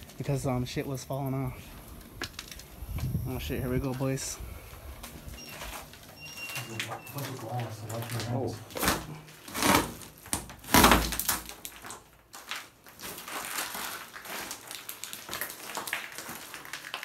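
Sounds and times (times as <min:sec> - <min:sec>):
footsteps crunching broken glass: 0:05.4 - 0:17.0.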